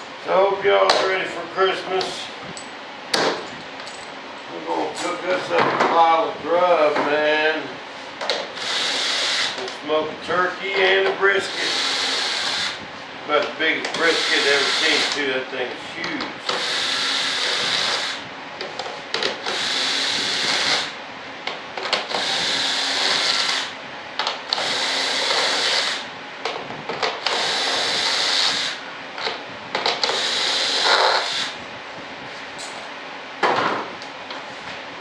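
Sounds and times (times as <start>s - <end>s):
power tool grinding: 8.5s - 9.6s, 11.5s - 12.8s, 13.9s - 15.2s, 16.5s - 18.2s, 19.4s - 20.9s, 22.0s - 23.7s, 24.5s - 26.0s, 27.2s - 28.8s, 29.9s - 31.6s.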